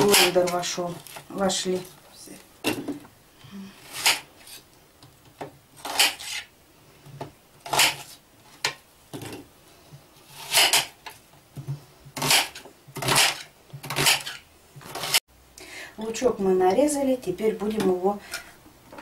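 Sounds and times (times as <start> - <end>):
knife cutting onions: 0.0 - 0.7, 5.8 - 6.5, 7.6 - 8.2, 12.1 - 15.2.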